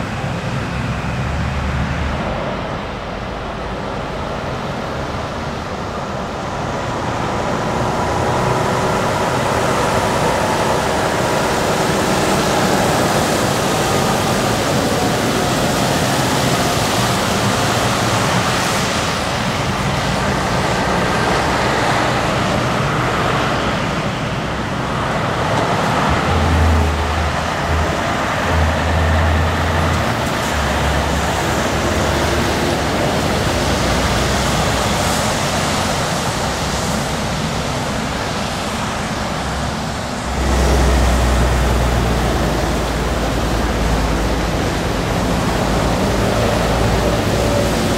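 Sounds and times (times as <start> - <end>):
diesel trucks driving past: 0.0 - 47.9
tyres hissing on wet road: 0.0 - 47.9.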